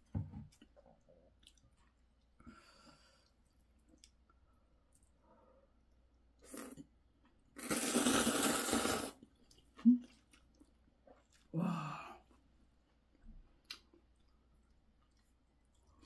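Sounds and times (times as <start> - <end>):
person slurping noodles: 6.4 - 6.8, 7.6 - 9.2.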